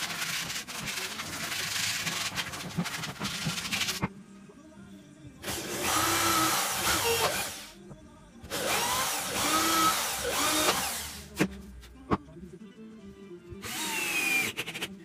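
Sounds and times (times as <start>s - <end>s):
electric drill boring into wood: 5.4s - 7.6s, 8.5s - 11.2s, 13.6s - 14.6s
cordless drill starting: 5.5s - 7.6s, 8.5s - 11.2s, 13.6s - 14.6s.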